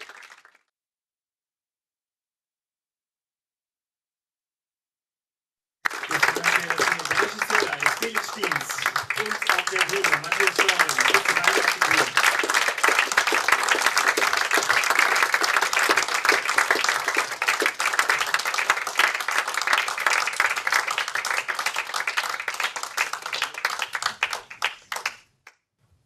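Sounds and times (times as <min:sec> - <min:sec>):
audience applauding: 0:00.0 - 0:00.7, 0:05.8 - 0:25.4.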